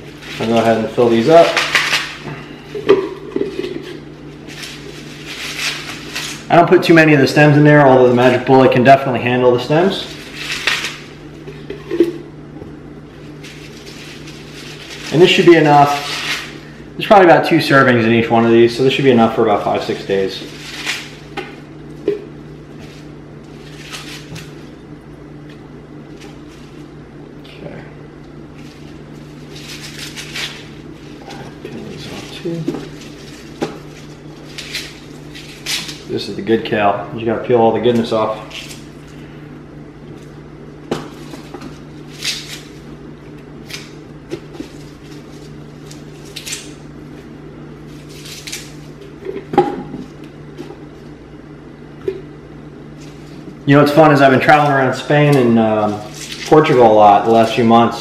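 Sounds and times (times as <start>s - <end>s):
leaves rustling and crinkling: 0.0s - 6.5s, 13.2s - 16.8s, 19.6s - 21.3s, 22.6s - 24.8s, 28.5s - 36.1s
steady low hum: 0.0s - 58.0s.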